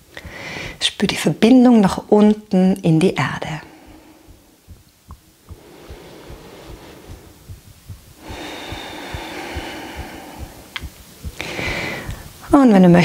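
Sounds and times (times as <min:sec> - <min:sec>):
woman breathing: 0:00.1 - 0:00.8, 0:03.2 - 0:12.5
soft low thumps: 0:03.0 - 0:13.0.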